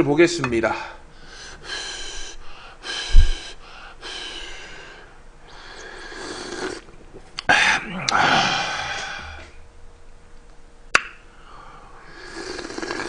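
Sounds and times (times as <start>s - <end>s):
person blowing and slurping broth: 5.6s - 6.9s, 12.1s - 13.0s.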